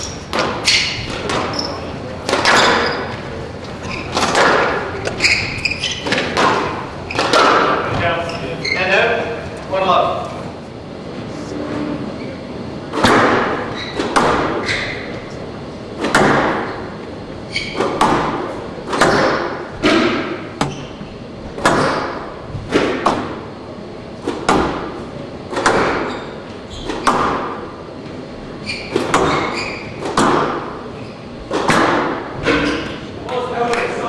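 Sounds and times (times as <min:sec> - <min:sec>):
squash ball hits: 0:00.0 - 0:03.3, 0:03.9 - 0:08.1, 0:12.9 - 0:15.2, 0:16.0 - 0:17.0, 0:17.6 - 0:23.5, 0:24.2 - 0:27.8, 0:28.8 - 0:33.0
shoe squeaks: 0:00.0 - 0:09.3, 0:13.6 - 0:15.3, 0:17.4 - 0:18.0, 0:20.6 - 0:21.2, 0:26.0 - 0:27.1, 0:28.6 - 0:30.1, 0:31.0 - 0:31.4.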